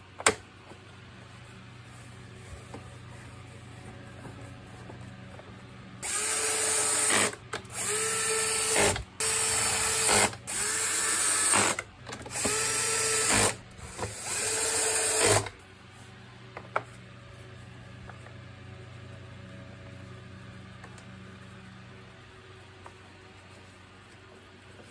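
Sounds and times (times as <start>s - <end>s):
cordless drill whining: 6.0s - 15.5s.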